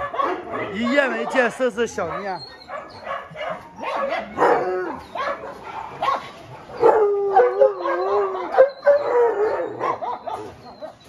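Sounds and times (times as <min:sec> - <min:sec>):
dogs whining and yipping: 0:00.0 - 0:11.0
dog howling: 0:02.1 - 0:05.5, 0:06.6 - 0:11.0.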